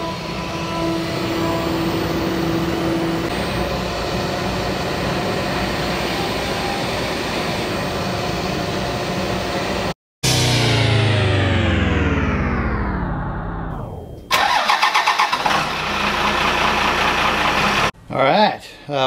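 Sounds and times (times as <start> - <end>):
machine tone: 0.0 - 8.5.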